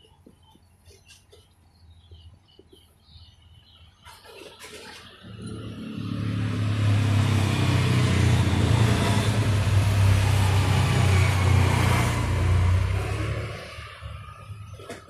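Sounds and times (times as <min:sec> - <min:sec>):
vehicle engine running: 0:05.1 - 0:14.8.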